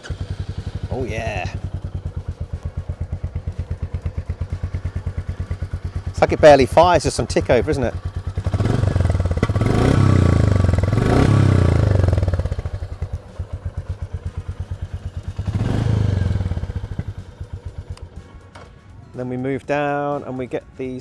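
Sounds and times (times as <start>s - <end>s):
motorcycle engine idling: 0.0s - 19.3s.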